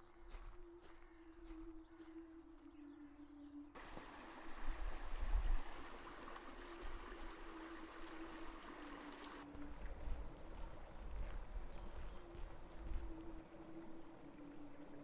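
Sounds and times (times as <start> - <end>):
flowing water rushing: 3.8 - 15.0.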